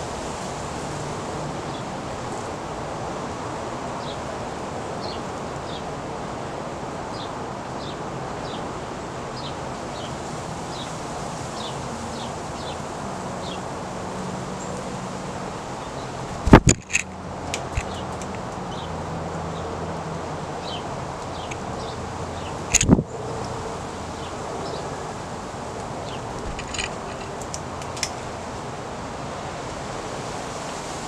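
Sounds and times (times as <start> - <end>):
steady rushing noise: 0.0 - 31.0
small birds chip calls: 15.8 - 19.7, 20.6 - 25.0.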